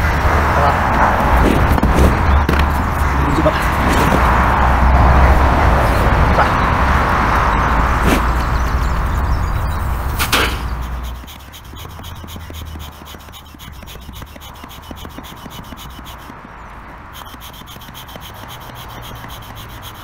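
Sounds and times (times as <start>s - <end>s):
low rumble: 0.0s - 10.2s
hand pump rasping strokes: 9.9s - 20.0s
sharp knock: 10.2s - 10.7s.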